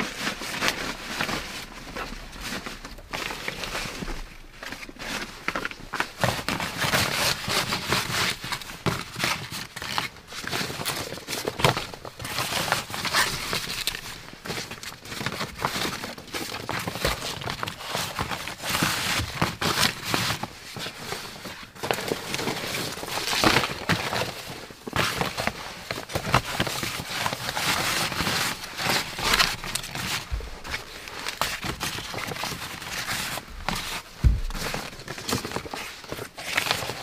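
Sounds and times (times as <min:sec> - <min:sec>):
leaves rustling and crinkling: 0:00.0 - 0:08.4, 0:17.6 - 0:37.0
wood knocks: 0:33.5 - 0:34.7.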